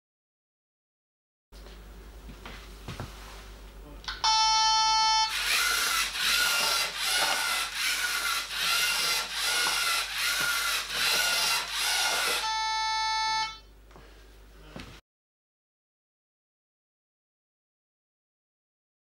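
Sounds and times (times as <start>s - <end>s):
electronic beep: 4.3s - 5.3s
robot motors and gears whirring: 5.3s - 12.4s.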